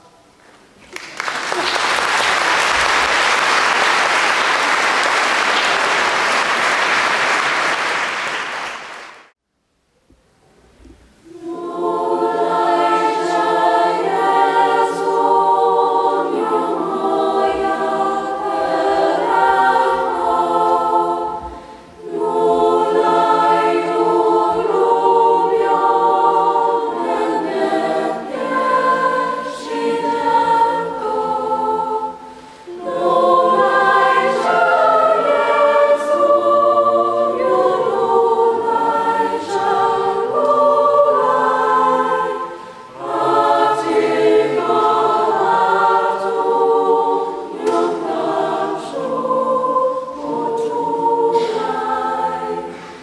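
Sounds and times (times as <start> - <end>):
youth choir singing: 11.2 - 53.0.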